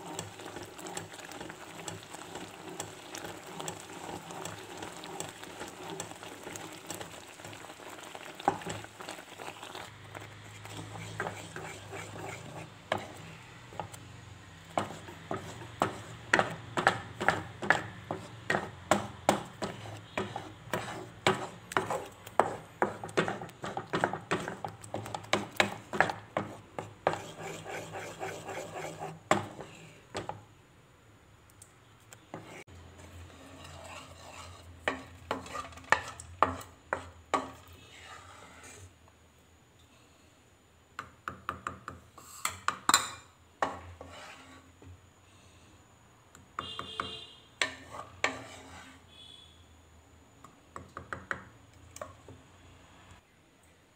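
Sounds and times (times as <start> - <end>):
wooden spoon scraping metal pan: 0.0 - 14.0, 14.6 - 30.4, 32.3 - 38.9, 43.6 - 44.9, 46.6 - 49.4.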